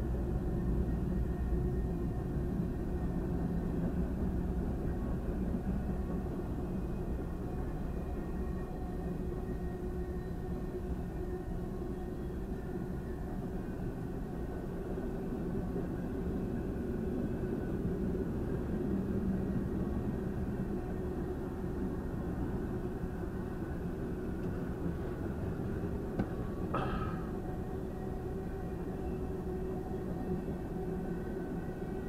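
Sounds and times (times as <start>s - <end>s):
freight train rumbling past: 0.0s - 32.0s.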